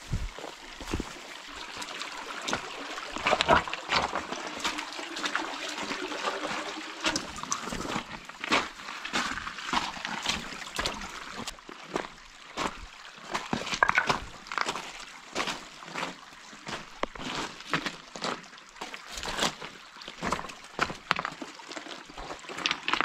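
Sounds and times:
footsteps crunching on gravel: 0.0 - 1.2
creek trickling over rocks: 0.0 - 23.0.

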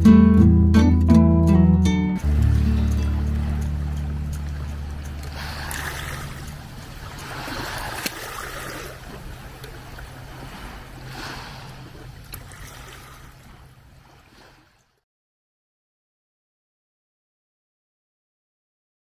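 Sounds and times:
low steady hum: 0.0 - 14.0
sea water washing: 2.2 - 14.9.

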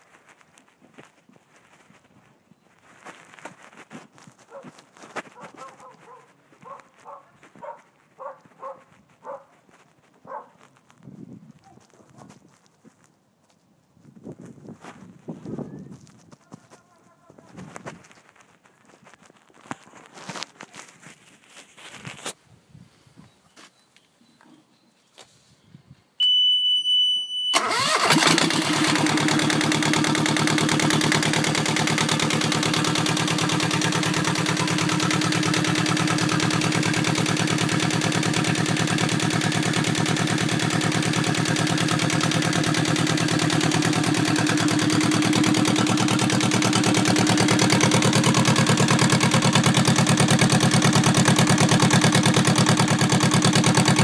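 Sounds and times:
diesel engine starting and idling: 27.5 - 54.0.

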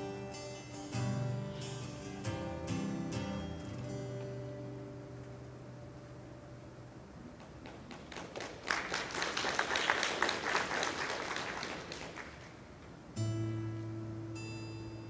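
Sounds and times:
acoustic guitar strummed chord: 0.0 - 5.9, 13.2 - 15.0
congregation applauding: 7.4 - 12.7.

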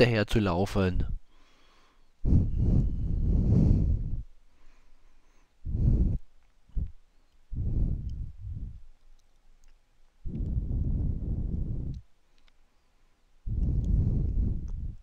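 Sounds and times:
wind buffeting microphone: 2.2 - 4.3, 5.6 - 8.9, 10.2 - 12.0, 13.5 - 15.0.

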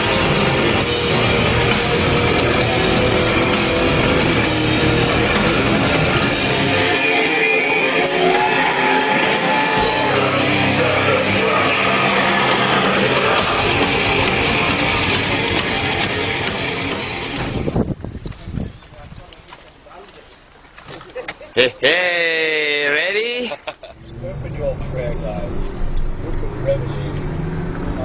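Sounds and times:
rock vocals: 0.0 - 17.4
distorted electric guitars: 0.0 - 18.0, 23.9 - 28.0
drums: 0.0 - 19.3.

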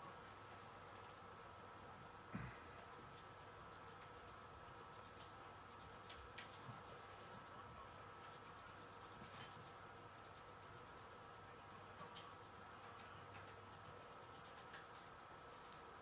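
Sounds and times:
pencil scratching on paper: 3.6 - 7.6, 8.3 - 14.8.

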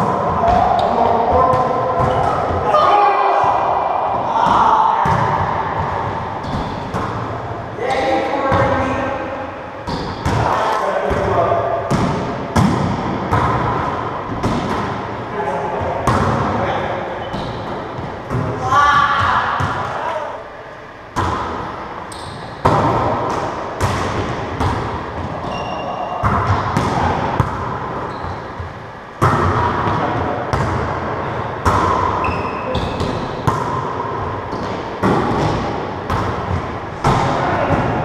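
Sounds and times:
sneaker squeaks on hardwood floor: 17.2 - 17.8, 22.1 - 22.6, 25.4 - 26.3, 28.0 - 28.6, 32.2 - 33.4
ball smacks with ringing echo: 31.6 - 38.0.

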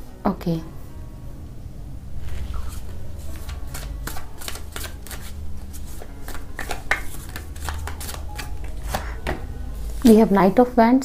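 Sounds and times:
cards being shuffled: 2.2 - 9.4.

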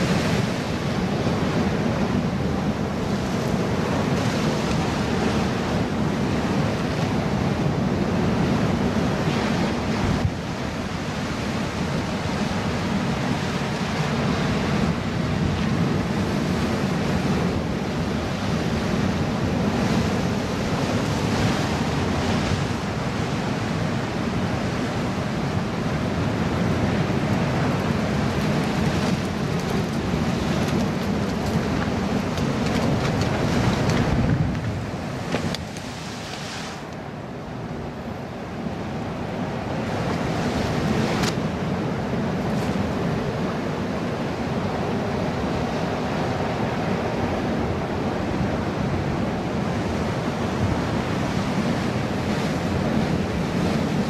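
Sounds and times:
surf washing against rock wall: 0.0 - 37.2
wind buffeting microphone: 0.0 - 54.0.

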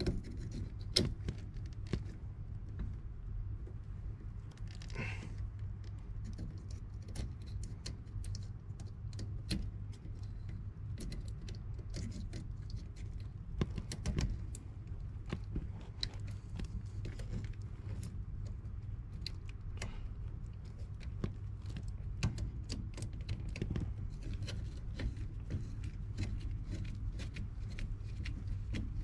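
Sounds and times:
wires clicking and rattling: 0.0 - 29.0.

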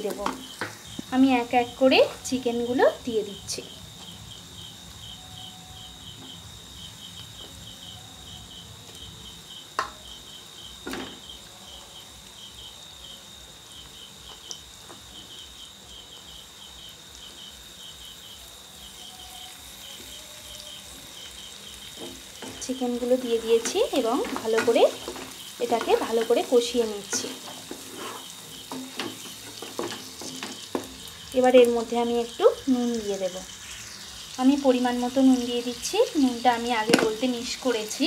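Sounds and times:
faint cricket chirping: 0.0 - 38.0
soft knocks in pan: 9.8 - 10.0, 10.8 - 11.2.

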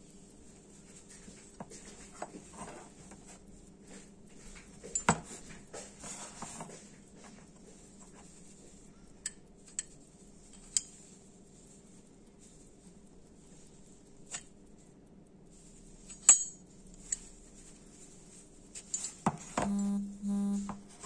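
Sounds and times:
soft rustling: 0.0 - 19.6
metal buckle clicking: 16.1 - 17.2.

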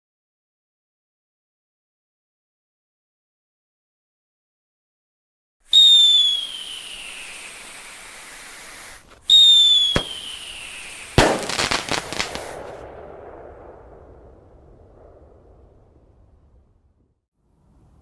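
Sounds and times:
firework falling whistle: 5.7 - 12.8
firework crack: 5.7 - 16.4
crackling pops: 6.1 - 13.0
firework bang: 8.7 - 16.6.

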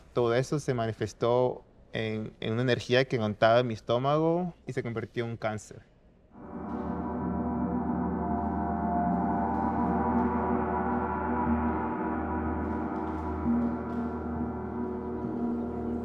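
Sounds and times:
gong ringing: 6.4 - 16.0.

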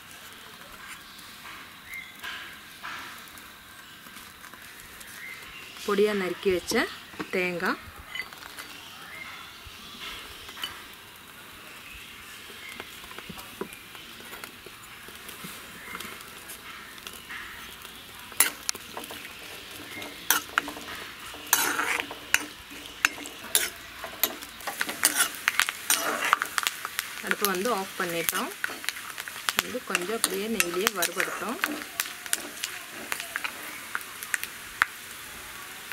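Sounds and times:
coconut sizzling in pan: 0.0 - 35.9
steel spoon scraping pan: 18.3 - 34.0.

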